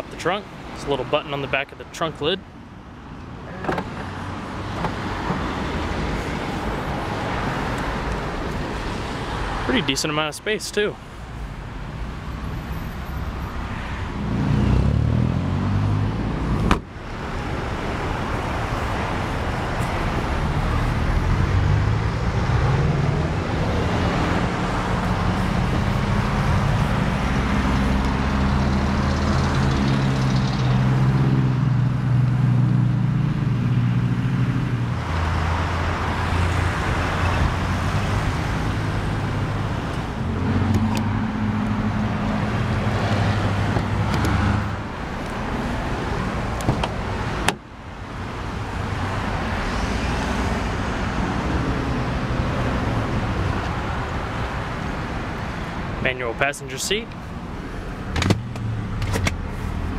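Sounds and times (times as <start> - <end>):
passing cars and trucks humming: 0.0 - 59.9
sharp thump: 16.6 - 16.9.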